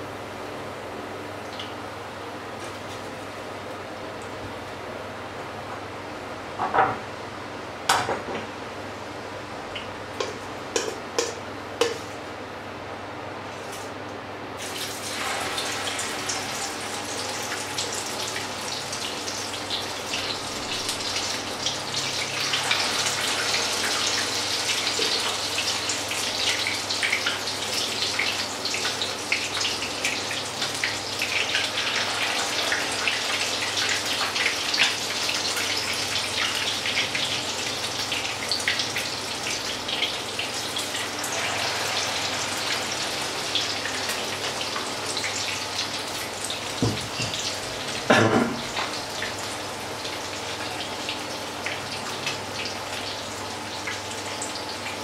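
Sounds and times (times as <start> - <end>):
oil sizzling in a frying pan: 14.6 - 55.0.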